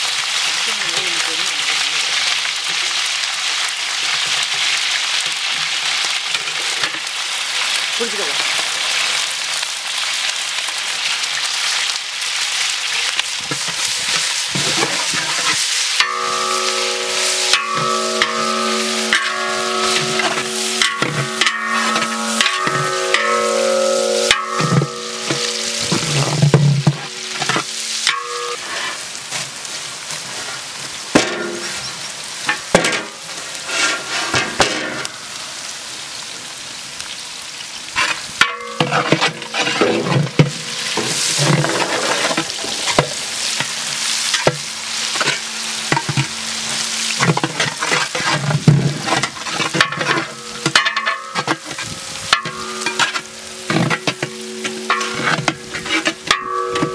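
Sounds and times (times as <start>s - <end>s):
onions sizzling in oil: 0.0s - 56.9s
metal ladle scraping pot: 13.6s - 29.4s, 32.8s - 35.1s, 38.0s - 43.7s, 44.3s - 56.9s.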